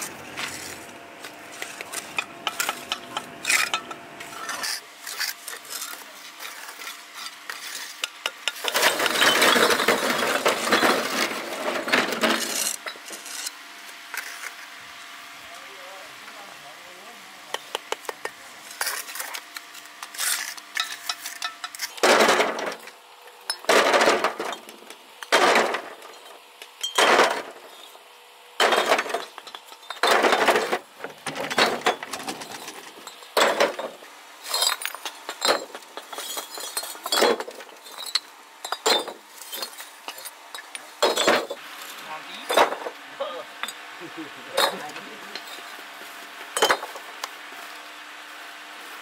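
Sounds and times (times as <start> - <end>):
tool scraping gravel: 0.0 - 14.7, 18.1 - 22.5.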